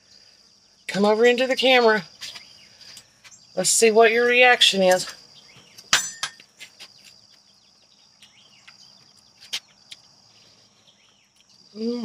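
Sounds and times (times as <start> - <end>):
insect drone: 0.0 - 12.0
small chirps: 2.1 - 3.6, 4.9 - 12.0.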